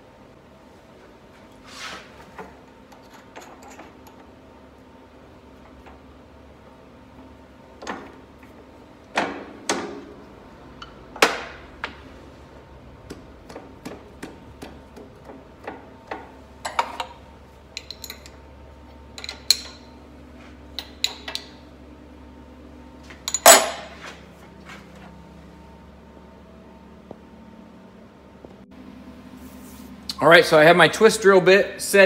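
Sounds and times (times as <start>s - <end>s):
faint steady hum: 0.0s - 32.0s
metal clinks and knocks: 17.8s - 18.4s, 23.1s - 24.0s.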